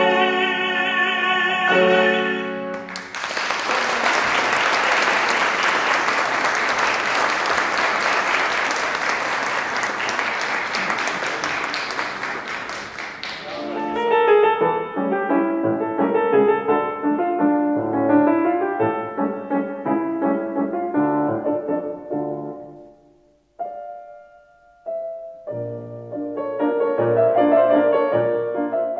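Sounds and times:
piano music: 0.0s - 3.0s, 13.1s - 28.9s
audience applauding: 2.7s - 14.1s.

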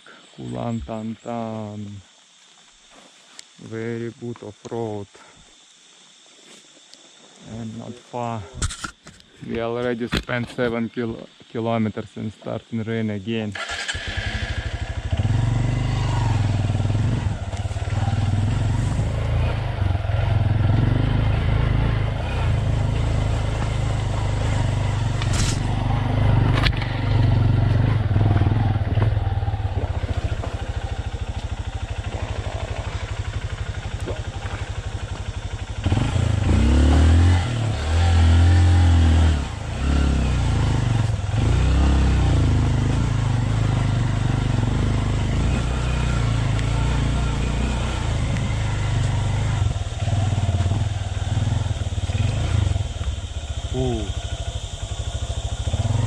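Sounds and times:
motorcycle engine revving: 13.5s - 56.0s.

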